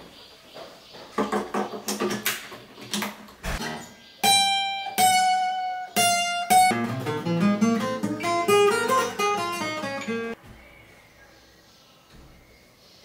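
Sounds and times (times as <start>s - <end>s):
acoustic guitar fingerstyle: 3.7s - 10.4s.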